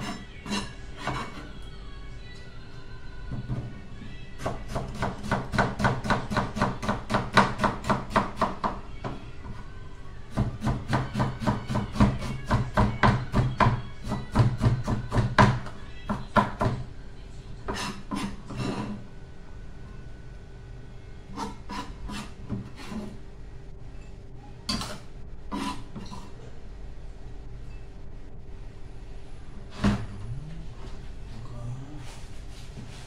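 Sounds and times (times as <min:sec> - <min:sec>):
kitchen utensil strokes: 0:17.7 - 0:19.0, 0:21.4 - 0:23.2, 0:25.5 - 0:26.3.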